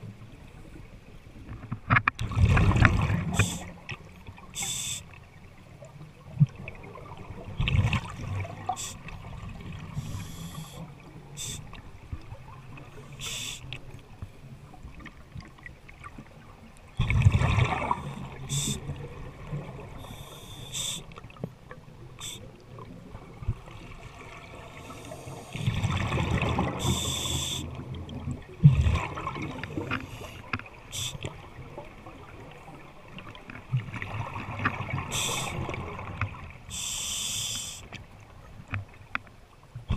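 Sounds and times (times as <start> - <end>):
exhaled bubbles rumbling: 2.2 - 4.6, 6.1 - 13.2, 14.6 - 20.1, 22.6 - 27.1, 27.7 - 30.3
scuba regulator hissing: 3.3 - 3.7, 4.6 - 5.0, 8.7 - 9.0, 10.0 - 10.8, 11.4 - 11.7, 13.1 - 13.7, 18.4 - 18.8, 20.1 - 21.1, 22.2 - 22.5, 26.8 - 27.7, 31.0 - 31.2, 35.1 - 35.6, 36.7 - 37.9.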